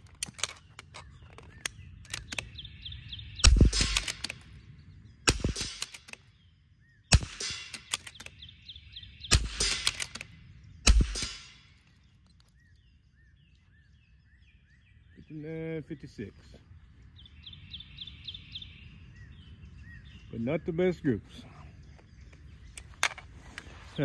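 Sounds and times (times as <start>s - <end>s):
rifle bolt clicks: 0.0s - 2.6s, 3.4s - 4.5s, 5.4s - 6.3s, 7.4s - 8.5s, 9.6s - 12.8s, 22.3s - 23.3s
rifle shots: 3.4s - 4.5s, 5.2s - 6.2s, 7.1s - 8.3s, 9.3s - 11.7s.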